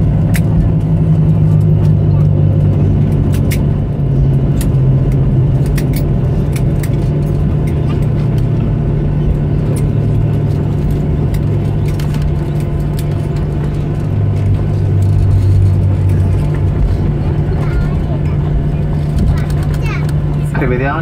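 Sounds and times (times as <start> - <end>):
low hum of engines and wheels: 0.0 - 21.0.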